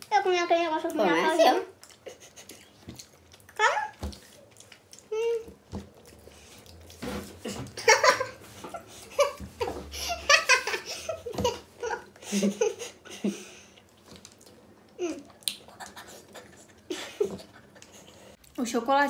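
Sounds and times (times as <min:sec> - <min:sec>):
people laughing and giggling: 0:07.8 - 0:13.5, 0:16.0 - 0:18.3.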